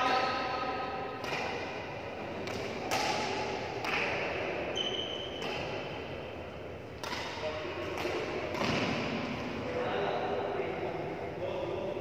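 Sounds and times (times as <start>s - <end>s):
rackets hitting shuttlecock: 1.1s - 6.2s, 6.9s - 9.6s.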